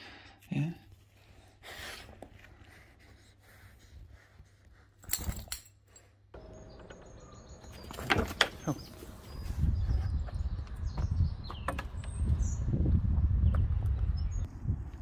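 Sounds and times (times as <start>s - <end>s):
small birds chirping: 6.4s - 14.6s.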